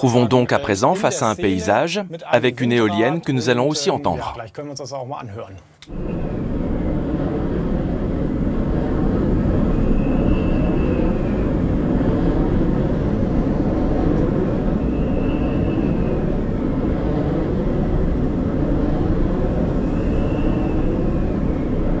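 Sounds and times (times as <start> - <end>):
faint higher swell: 5.9 - 22.0
wind turbine low rumble: 5.9 - 22.0.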